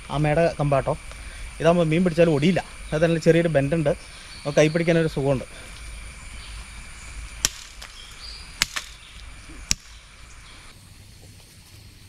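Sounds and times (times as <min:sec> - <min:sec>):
machete chopping cane: 0:07.4 - 0:10.0.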